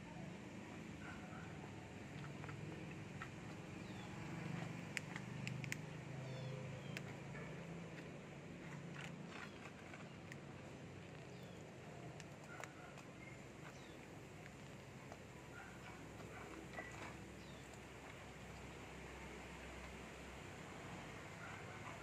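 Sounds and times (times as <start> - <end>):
cats chewing: 8.5 - 19.0.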